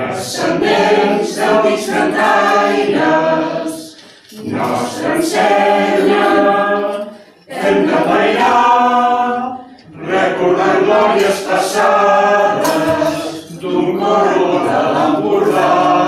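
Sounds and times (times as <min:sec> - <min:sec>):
mixed choir singing a cappella: 0:00.0 - 0:16.0.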